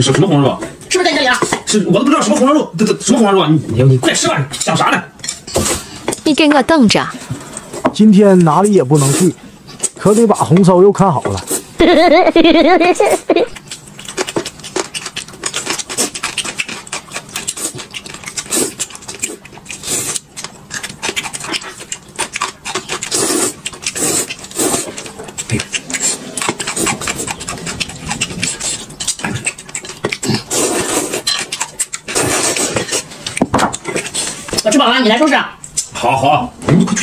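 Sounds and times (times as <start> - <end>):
noodles slurped and chewed: 13.6 - 34.8.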